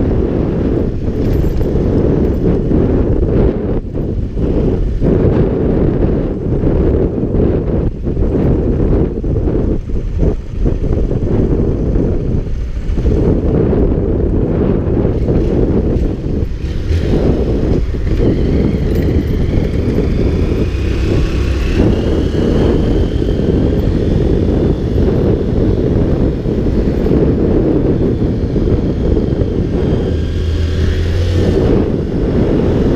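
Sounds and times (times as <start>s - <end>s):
motorcycle engine running: 0.0s - 32.9s
wind rumbling on microphone: 0.0s - 32.9s.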